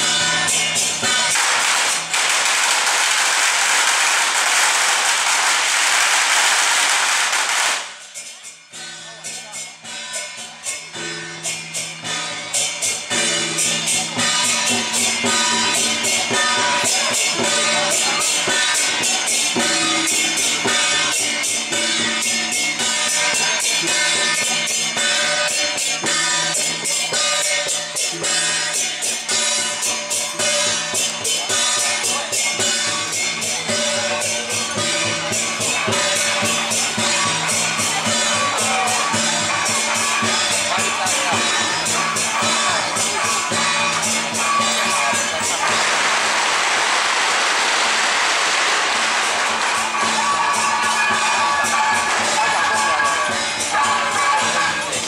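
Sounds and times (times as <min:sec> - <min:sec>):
cymbal-like percussion beat: 0:00.0 - 0:55.0
firecrackers crackling: 0:00.4 - 0:08.3, 0:30.4 - 0:53.9.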